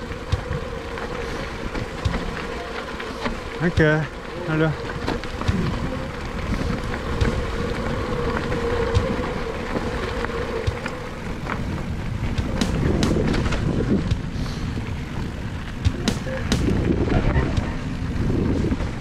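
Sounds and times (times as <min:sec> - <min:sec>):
steady whine: 0:00.0 - 0:18.7
tyres rolling on gravel: 0:00.0 - 0:19.0.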